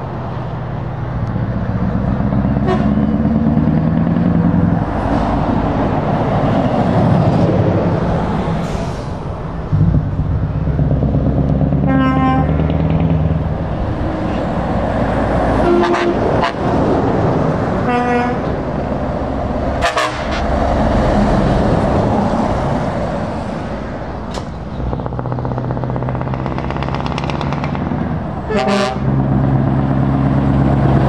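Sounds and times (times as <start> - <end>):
diesel lorries driving past: 0.0 - 31.0
truck horn: 2.5 - 3.3, 11.8 - 12.7, 15.6 - 16.7, 17.8 - 18.6, 19.8 - 20.7, 28.4 - 29.2.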